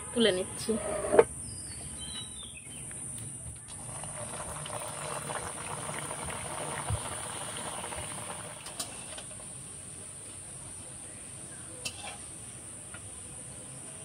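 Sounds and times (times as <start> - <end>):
dough deep-frying in hot oil: 3.6 - 14.0.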